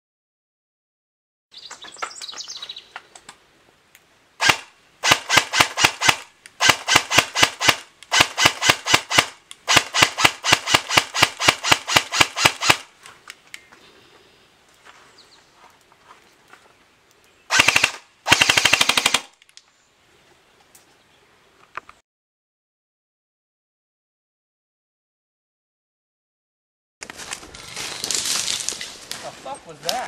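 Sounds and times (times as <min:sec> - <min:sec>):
bird chirping: 0:01.5 - 0:03.1, 0:13.6 - 0:17.6, 0:19.6 - 0:21.7
airsoft gun firing bursts: 0:04.4 - 0:12.9, 0:17.5 - 0:19.3.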